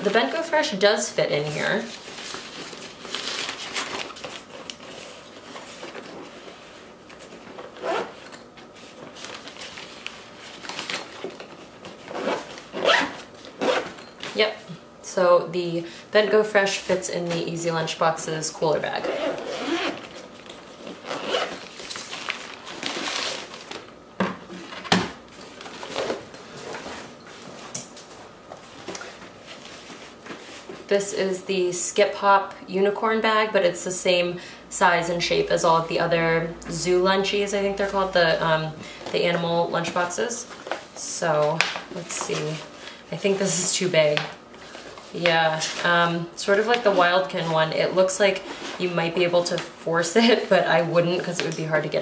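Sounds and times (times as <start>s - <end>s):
zipper: 7.8s - 8.2s, 12.1s - 14.0s, 19.0s - 20.1s, 21.0s - 21.6s
fabric bag rustling and scraping: 19.0s - 23.8s.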